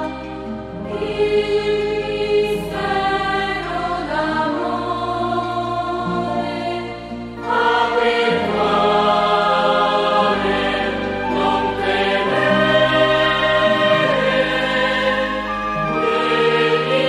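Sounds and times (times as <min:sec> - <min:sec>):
choir singing sustained chords: 0:00.0 - 0:17.0.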